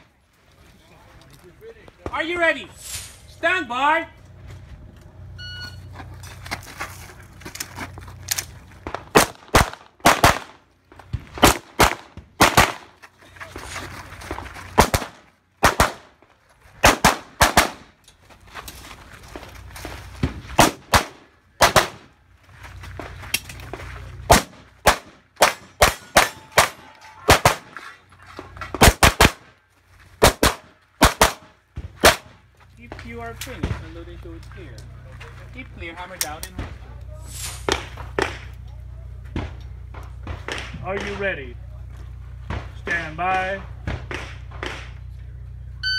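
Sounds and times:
shot timer beep: 0:05.4 - 0:05.9
pistol firing rapid shots: 0:09.1 - 0:10.6, 0:11.4 - 0:12.9, 0:14.8 - 0:16.1, 0:16.8 - 0:17.9, 0:20.6 - 0:22.0, 0:24.3 - 0:27.7, 0:28.8 - 0:29.4, 0:30.2 - 0:32.3.

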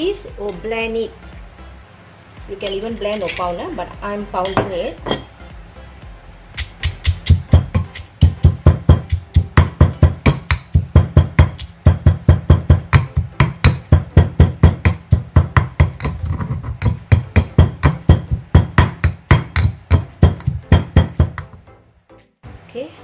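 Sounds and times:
stone pestle pounding in mortar: 0:06.6 - 0:21.6.

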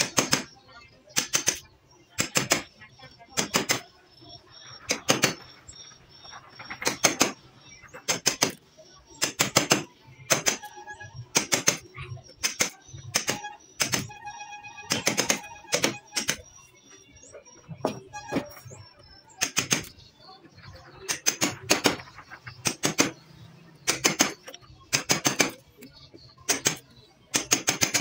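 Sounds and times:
hammer striking wood chisel: 0:11.3 - 0:11.8, 0:12.4 - 0:14.2, 0:14.9 - 0:16.4.

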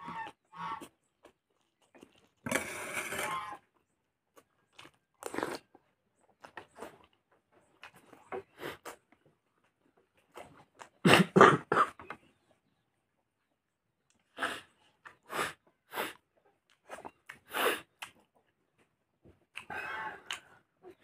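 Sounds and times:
person chewing and smacking: 0:04.3 - 0:11.0, 0:16.6 - 0:19.7, 0:20.3 - 0:20.5.

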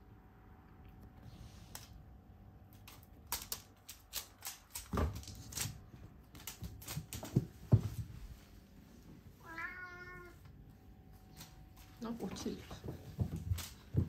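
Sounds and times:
cat claws clicking on wood floor: 0:02.7 - 0:07.4, 0:13.2 - 0:14.0.

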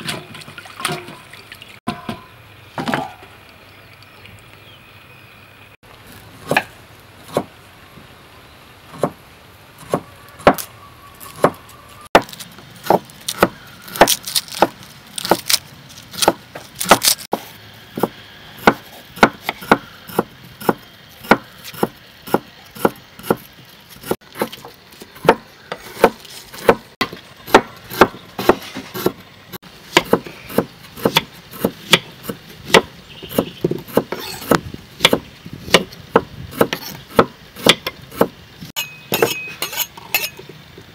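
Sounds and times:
knife chopping on wooden board: 0:16.2 - 0:23.4, 0:25.2 - 0:29.2, 0:29.9 - 0:38.3.

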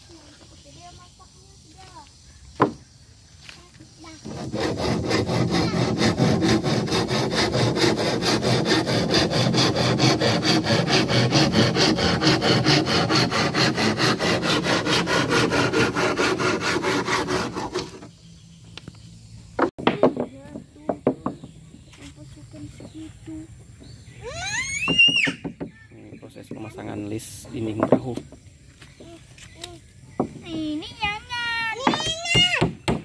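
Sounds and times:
handsaw cutting wood: 0:04.2 - 0:18.1.

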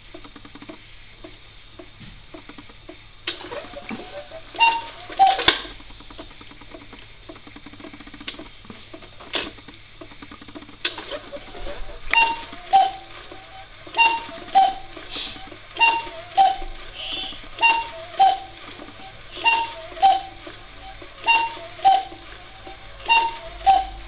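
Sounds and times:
clock works clicking and rattling: 0:00.1 - 0:24.0
cuckoo clock call: 0:03.4 - 0:05.9, 0:11.1 - 0:24.0.

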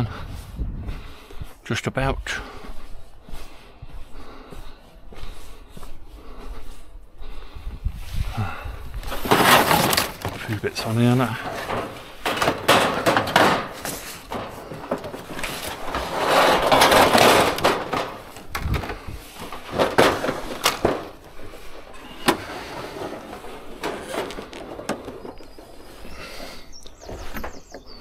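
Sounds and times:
metal panels scraping: 0:09.0 - 0:27.7.

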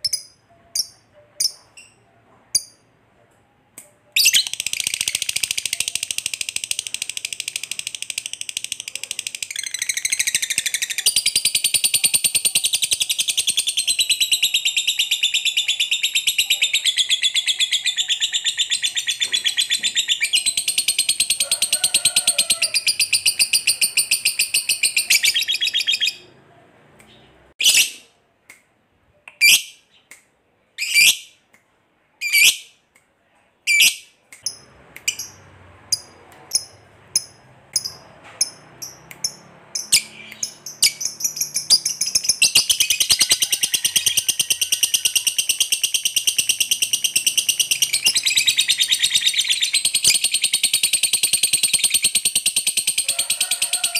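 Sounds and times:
bird chattering trill: 0:22.6 - 0:26.2, 0:36.0 - 0:53.1.

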